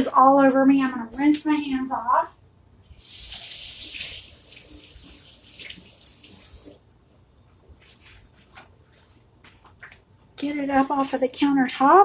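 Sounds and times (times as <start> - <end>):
tap water running: 3.0 - 6.9
faint rustles and taps: 7.5 - 10.4.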